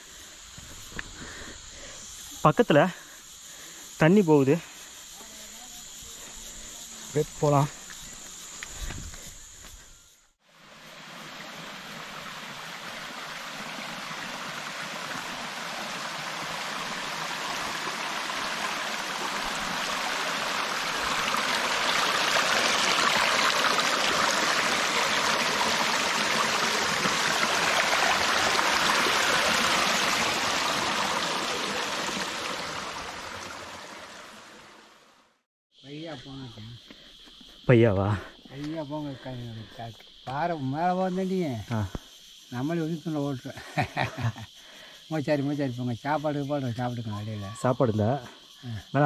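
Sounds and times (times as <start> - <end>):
stream of water flowing: 10.4 - 35.5.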